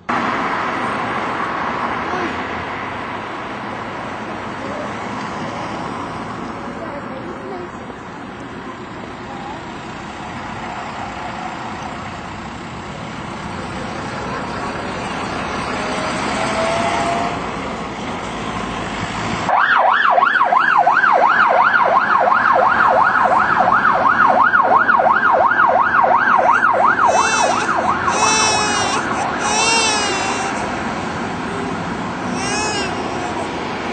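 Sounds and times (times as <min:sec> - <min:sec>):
bus engine driving past: 0:00.0 - 0:19.5, 0:21.0 - 0:33.9
siren in a fast yelp: 0:19.5 - 0:30.6.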